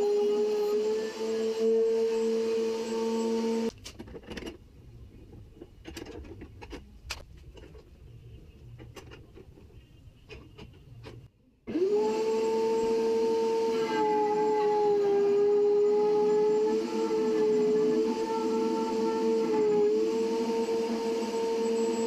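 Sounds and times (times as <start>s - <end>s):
router high whine: 0.0s - 3.7s, 11.7s - 22.0s.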